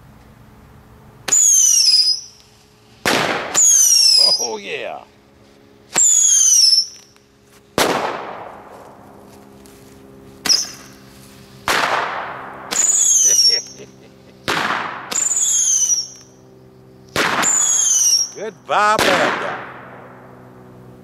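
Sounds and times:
firework bangs: 1.3 - 4.4, 7.8 - 8.8, 11.6 - 13.8, 14.4 - 16.2, 17.1 - 20.2
firework whistle falling in pitch: 6.0 - 7.1, 12.8 - 13.8, 15.2 - 16.3, 17.4 - 18.4.

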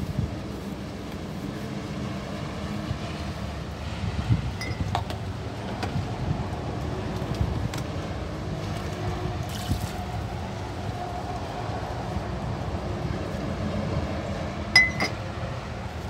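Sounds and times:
vehicle noise: 0.0 - 16.0
wind: 0.0 - 16.0.

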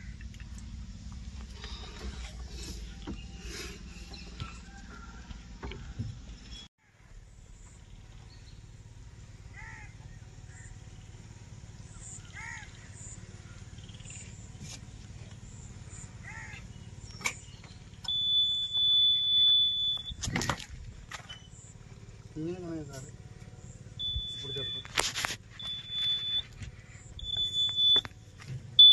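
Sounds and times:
warning buzzer beep: 18.0 - 20.2, 24.0 - 25.0, 25.6 - 28.1
short chirps: 24.0 - 28.1.

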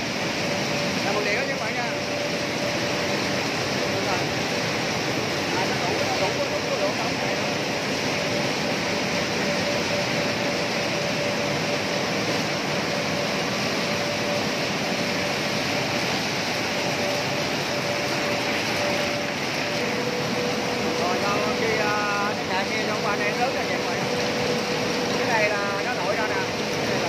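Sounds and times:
processing machinery running: 0.0 - 27.0.

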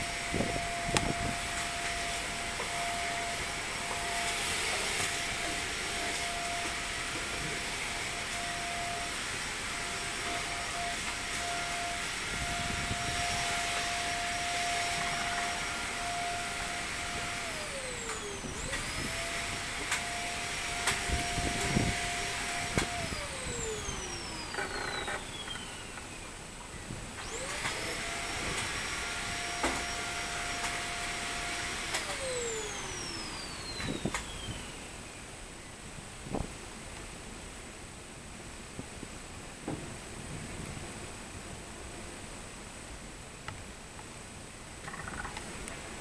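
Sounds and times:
sliding steady hum: 0.0 - 44.4
cicadas buzzing: 23.2 - 26.6, 44.7 - 46.0.

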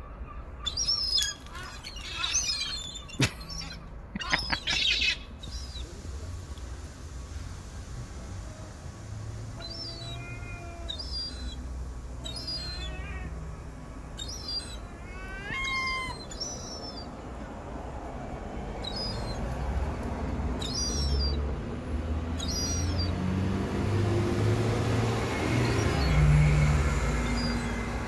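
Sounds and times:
gulls calling: 0.0 - 6.0, 9.4 - 17.5, 18.8 - 19.9, 20.5 - 21.5, 22.3 - 23.4, 24.3 - 28.0
low vehicle engine rumble: 0.8 - 28.0.

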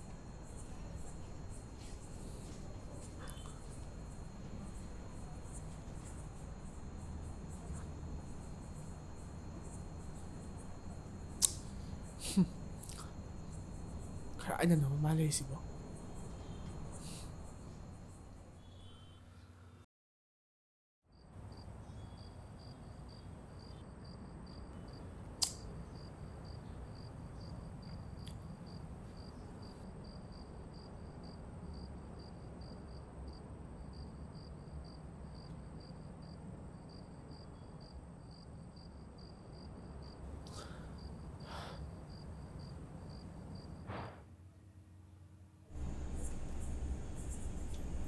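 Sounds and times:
low hiss: 0.0 - 19.1, 45.7 - 48.0
crickets chirping: 0.0 - 19.8, 21.1 - 44.2, 45.7 - 48.0
thin insect whine: 0.0 - 19.8, 21.2 - 44.2, 45.7 - 48.0
sharp click: 11.4 - 11.7, 25.4 - 25.7.

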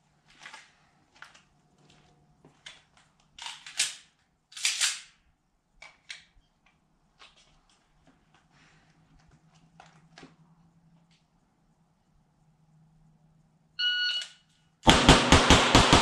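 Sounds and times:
pistol shots: 14.9 - 16.0.

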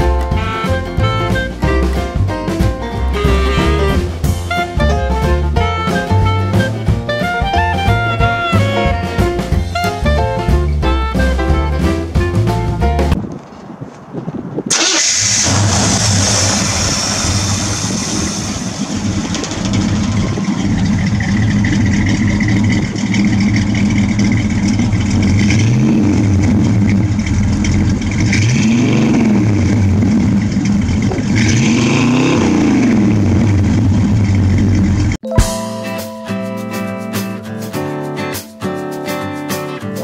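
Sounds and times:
car engine idling: 14.7 - 35.2
engine throttle blips: 14.7 - 35.2.

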